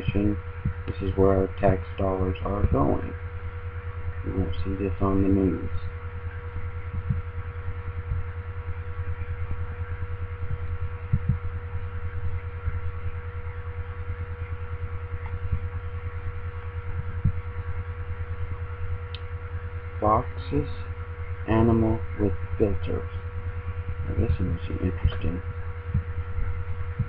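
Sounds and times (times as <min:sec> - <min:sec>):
high-pitched whine: 0:00.0 - 0:27.0
low electrical buzz: 0:00.0 - 0:27.0.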